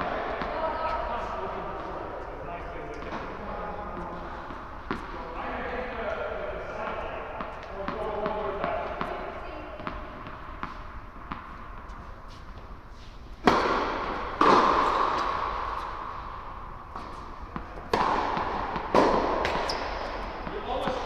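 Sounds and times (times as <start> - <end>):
rackets striking tennis balls: 0.0 - 5.4, 6.1 - 21.0.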